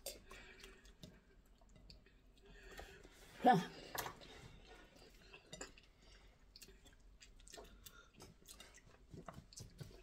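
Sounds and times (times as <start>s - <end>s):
person chewing with mouth smacks: 0.0s - 2.5s, 4.6s - 10.0s.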